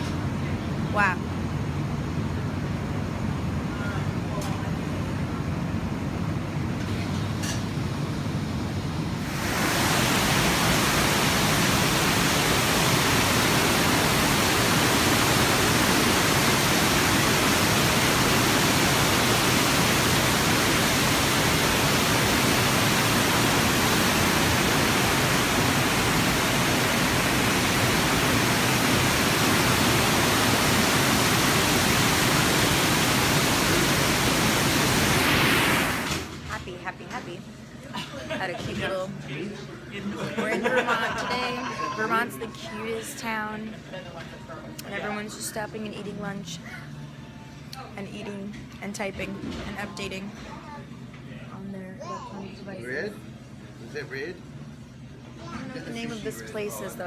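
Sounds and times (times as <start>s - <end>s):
river rushing over rocky falls: 9.3s - 36.1s.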